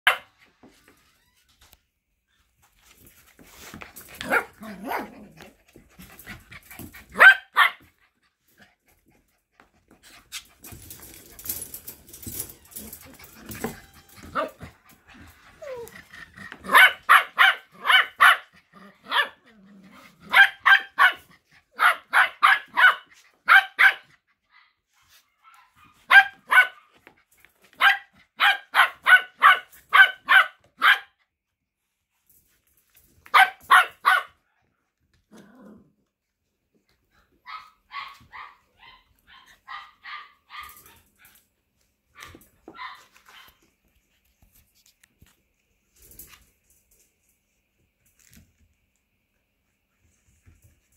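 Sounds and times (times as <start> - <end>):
puppy barking: 0.0 - 0.3, 7.2 - 7.8, 16.6 - 19.4, 20.3 - 24.1, 25.4 - 27.0, 27.8 - 31.2, 33.3 - 34.4, 37.5 - 40.8
puppy yipping: 37.4 - 40.7.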